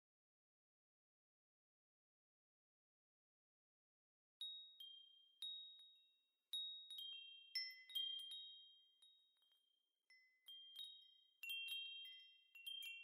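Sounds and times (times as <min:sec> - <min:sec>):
faint high chime tones: 0:04.4 - 0:13.0.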